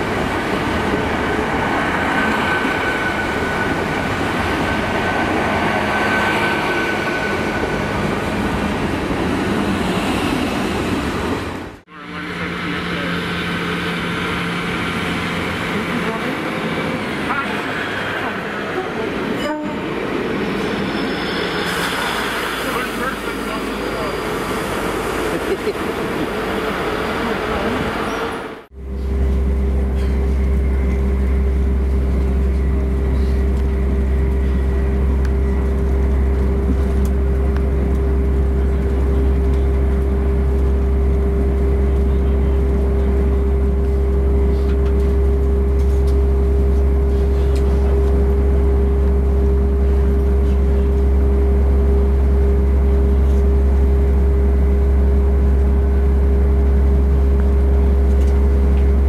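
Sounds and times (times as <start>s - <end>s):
train drone inside carriage: 0.0s - 59.0s.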